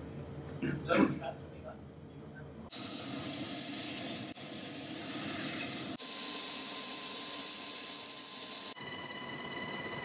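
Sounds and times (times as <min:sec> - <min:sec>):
helicopter turbines and rotor: 0:02.6 - 0:10.0.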